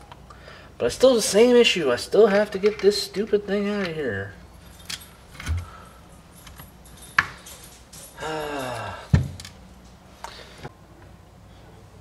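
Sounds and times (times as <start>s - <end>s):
metal engine parts clinking: 3.8s - 9.9s
man groaning: 8.2s - 9.1s.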